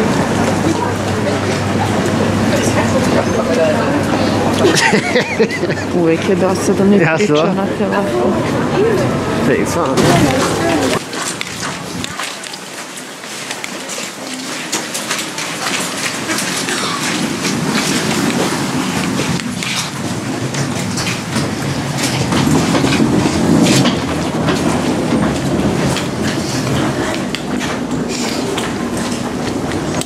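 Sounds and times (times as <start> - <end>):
steady rumble: 14.8 - 30.0.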